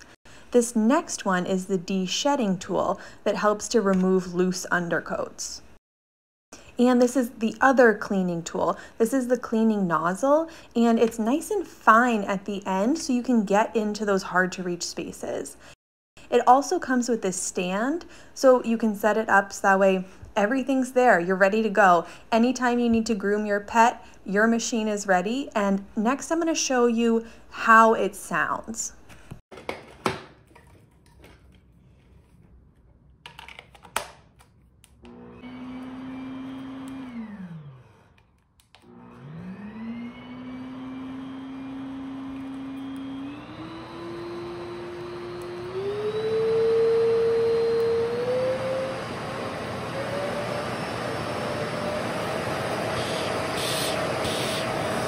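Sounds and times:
vacuum motor whining: 35.1 - 55.0.

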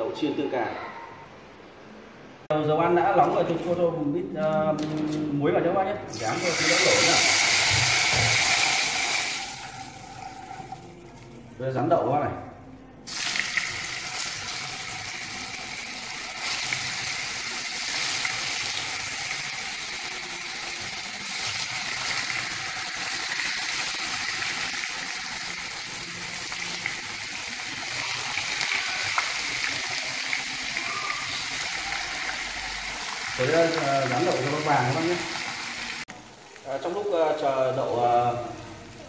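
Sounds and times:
tofu sizzling in hot oil: 6.1 - 10.8, 13.1 - 36.0.

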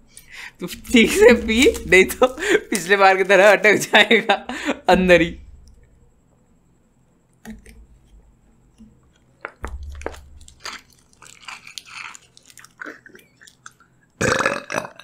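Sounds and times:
carton crackling when squeezed: 0.6 - 3.3, 8.8 - 15.0.

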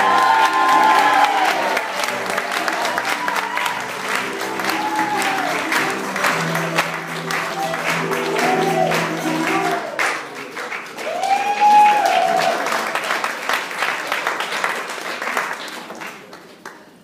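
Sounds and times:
long cheer: 0.0 - 10.2, 11.0 - 13.1
audience applauding: 0.0 - 17.0.

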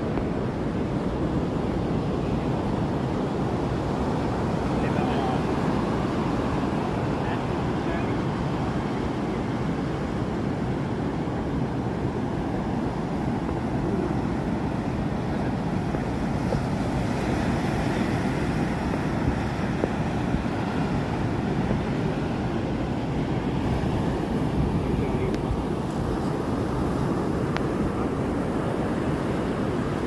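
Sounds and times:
ocean surf breaking: 0.0 - 30.0
wind rumbling on microphone: 0.0 - 30.0.

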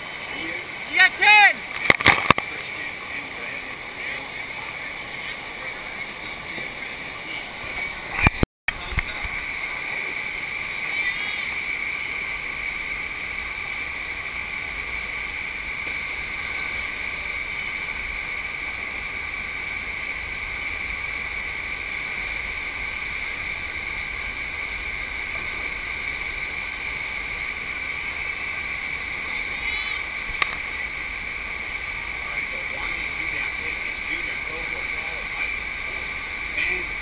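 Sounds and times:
water rushing over wave machine: 0.0 - 37.0
sharp click: 1.8 - 2.5.

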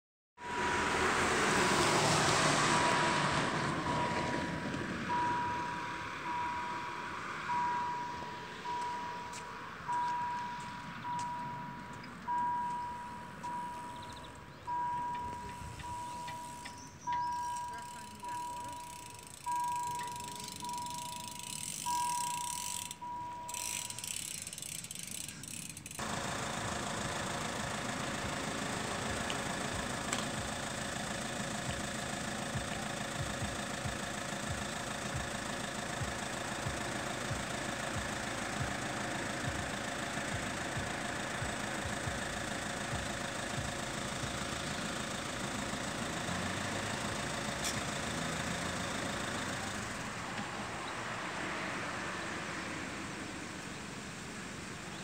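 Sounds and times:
level crossing warning bell: 0.4 - 24.4, 26.0 - 50.2
car driving away: 0.4 - 24.6, 25.3 - 55.0
level crossing bell beeping: 2.5 - 24.0.

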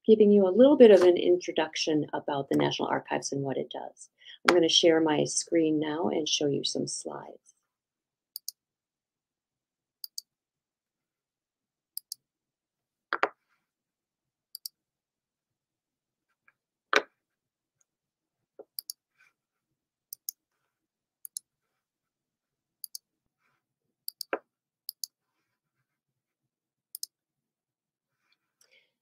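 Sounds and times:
computer mouse clicking: 8.4 - 8.6, 10.0 - 10.3, 12.0 - 12.2, 14.6 - 14.8, 18.7 - 19.0, 20.1 - 20.4, 21.2 - 21.4, 22.8 - 23.0, 24.1 - 25.2, 26.9 - 27.1.

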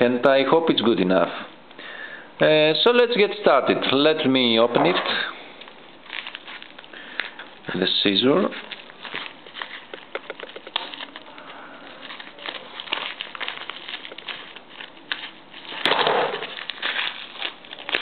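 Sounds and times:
plastic packaging crinkling: 3.7 - 18.0.

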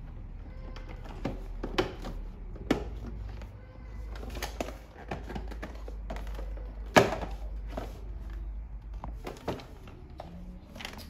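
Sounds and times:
plastic toy panels clacking: 0.5 - 8.3.

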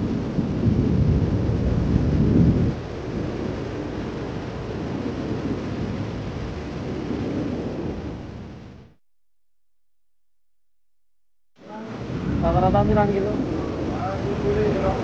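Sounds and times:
ocean surf breaking on beach: 11.6 - 15.0.

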